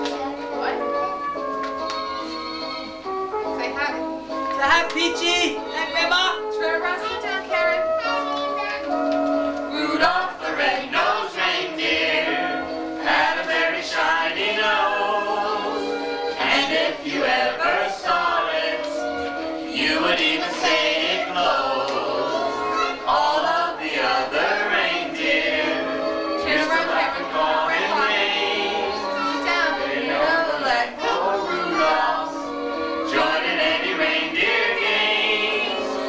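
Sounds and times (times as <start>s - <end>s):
family singing together: 9.7s - 36.0s.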